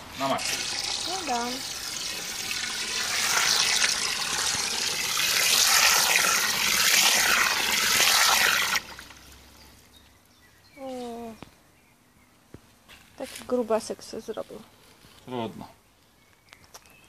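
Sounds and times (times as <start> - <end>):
hose water gushing and splashing: 0.0 - 9.7.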